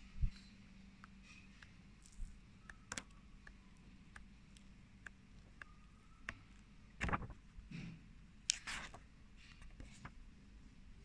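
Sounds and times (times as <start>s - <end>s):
book pages rustling: 1.1s - 7.6s, 8.4s - 10.2s.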